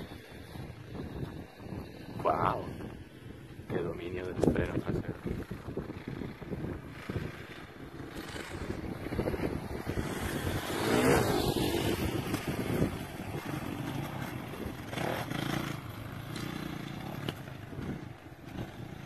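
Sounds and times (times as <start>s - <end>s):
motocross bike engine revving: 4.6s - 19.0s.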